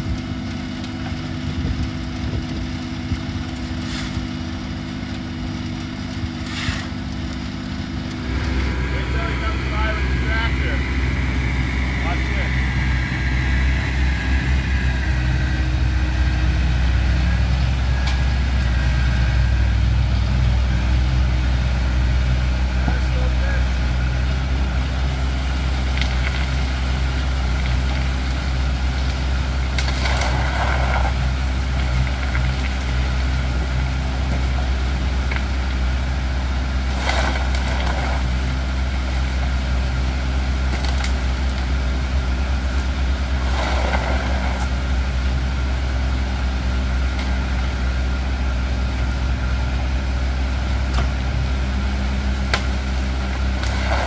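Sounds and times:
tractor engine idling: 0:00.0 - 0:54.0
soil being shovelled: 0:03.8 - 0:04.3, 0:06.3 - 0:07.0, 0:25.4 - 0:35.7, 0:36.6 - 0:38.7, 0:42.7 - 0:45.0, 0:52.4 - 0:54.0.

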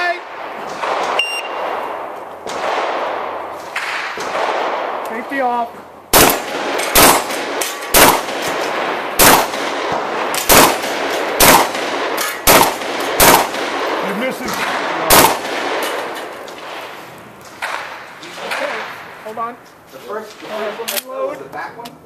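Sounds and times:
shotgun shots with echo: 0:00.0 - 0:05.5, 0:06.1 - 0:16.9, 0:17.6 - 0:19.2.

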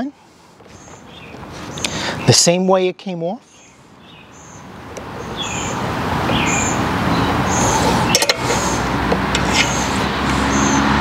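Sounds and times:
vehicle engine running: 0:05.5 - 0:11.0.

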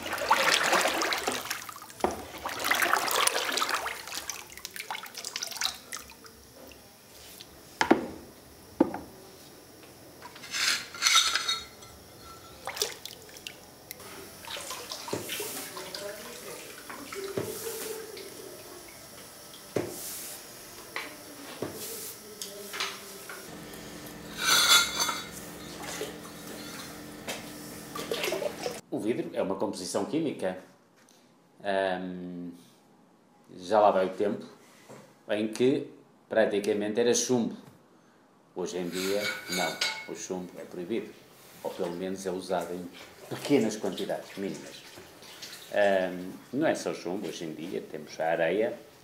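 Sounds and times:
liquid sloshing in plastic bucket: 0:00.0 - 0:06.2, 0:12.6 - 0:13.6, 0:28.0 - 0:28.8
liquid pouring and splashing: 0:00.0 - 0:06.8, 0:12.6 - 0:13.6, 0:14.4 - 0:18.3, 0:27.8 - 0:28.8, 0:43.2 - 0:46.0.

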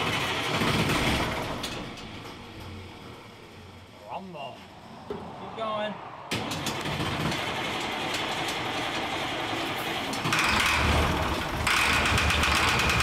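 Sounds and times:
engine cranking and firing: 0:00.0 - 0:03.5, 0:06.3 - 0:13.0.

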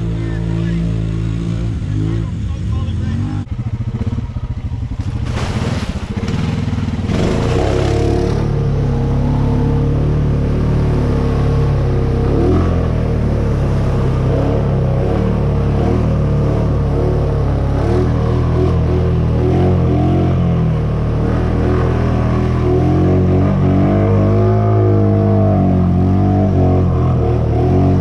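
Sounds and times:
water and mud splashing: 0:00.0 - 0:28.0
atv engine running under load: 0:01.6 - 0:12.2.

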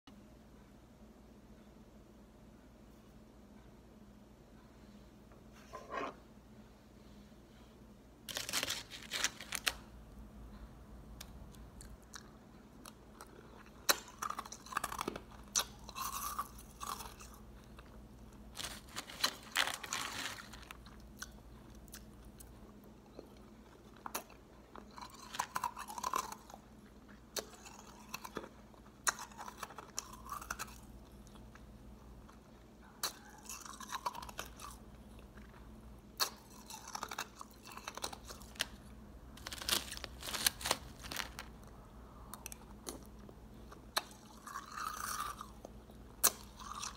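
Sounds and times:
crushed ice being chewed: 0:08.3 - 0:09.7, 0:11.8 - 0:46.9.

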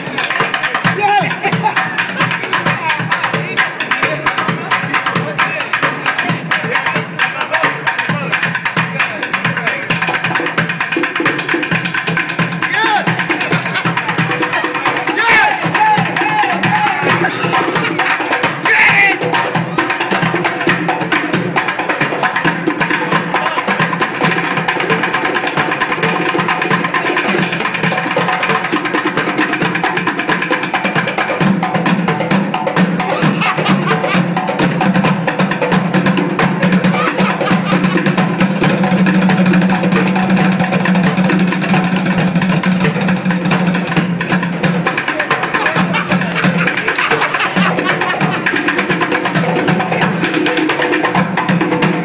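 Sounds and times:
hand-played djembe: 0:00.0 - 0:52.0
drumsticks beating plastic buckets: 0:42.8 - 0:52.0.

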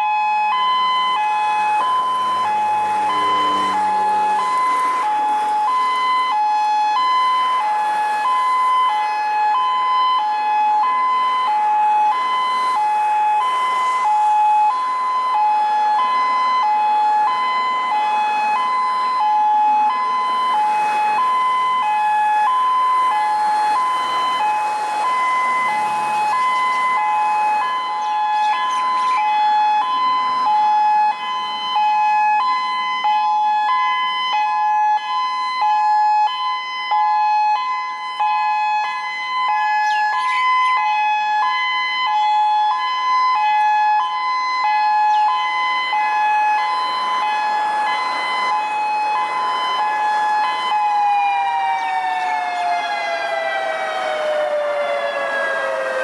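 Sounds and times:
two-tone warning siren: 0:00.0 - 0:56.0.

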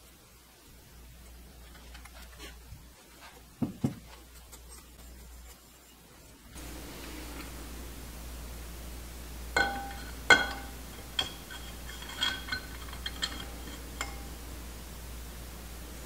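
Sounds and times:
metal parts clinking: 0:09.6 - 0:14.3.

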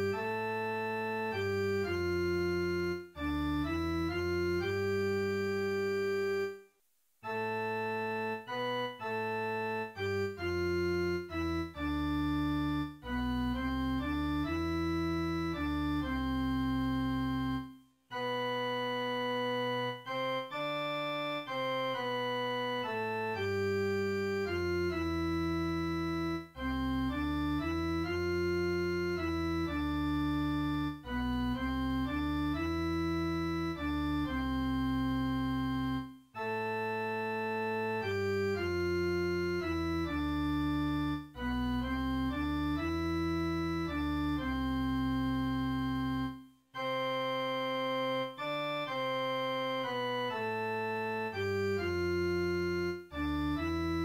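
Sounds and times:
organ music: 0:00.0 - 0:06.6, 0:07.3 - 0:54.0.

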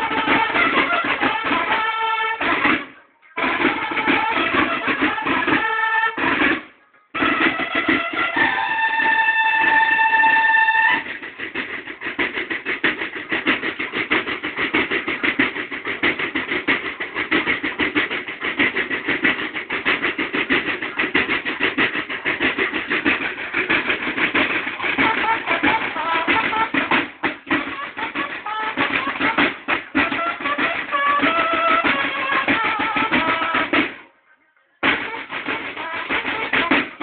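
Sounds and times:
bugles holding a long note: 0:00.0 - 0:11.1, 0:24.9 - 0:33.8
field drums playing a cadence: 0:00.0 - 0:34.2, 0:34.8 - 0:37.0.

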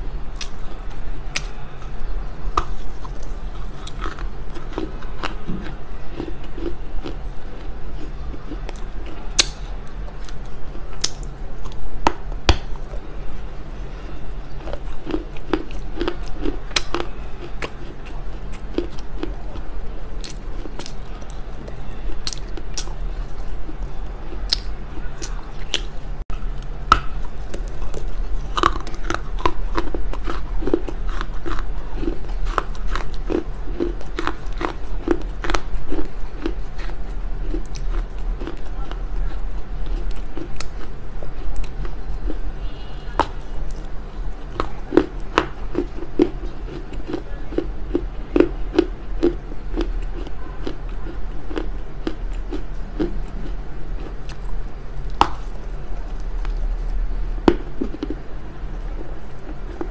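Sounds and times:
crunchy clay being chewed: 0:00.0 - 0:59.9
steady low hum: 0:00.0 - 0:59.9.

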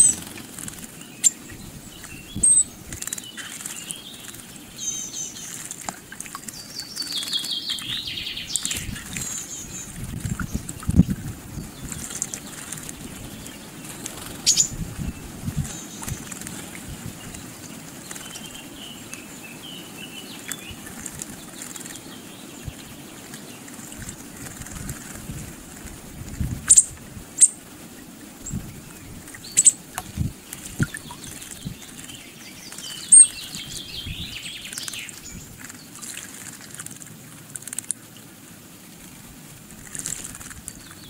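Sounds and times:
birds fluttering and splashing: 0:00.0 - 0:41.0
faint high bird chirps: 0:01.2 - 0:05.6, 0:29.4 - 0:29.8, 0:30.8 - 0:35.4.

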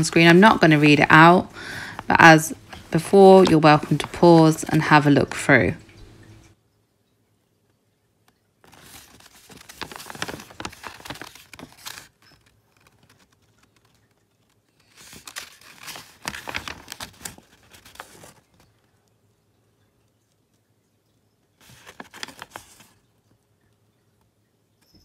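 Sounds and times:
paper scroll rustling: 0:00.0 - 0:05.4, 0:08.6 - 0:19.1, 0:21.6 - 0:23.0.

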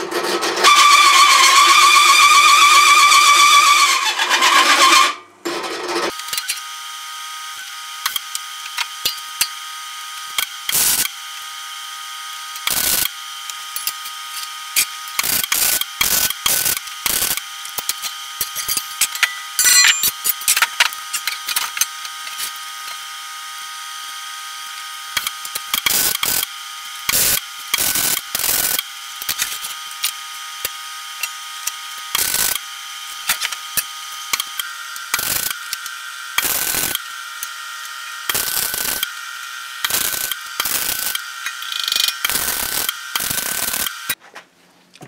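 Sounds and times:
steady background whine: 0:17.7 - 0:22.9
steel plates clanking and scraping: 0:18.0 - 0:21.8.

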